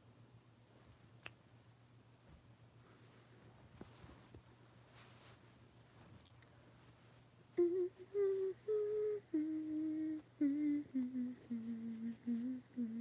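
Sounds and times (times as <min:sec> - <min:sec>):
girl humming a tune: 0:07.6 - 0:13.0.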